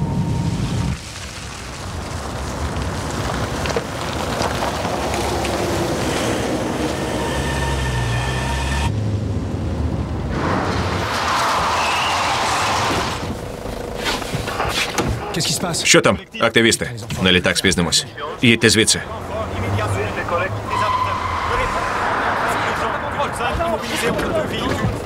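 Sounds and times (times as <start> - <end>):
large vehicle low hum: 0.0 - 15.9
passing traffic rumble: 0.0 - 16.3, 16.9 - 25.0.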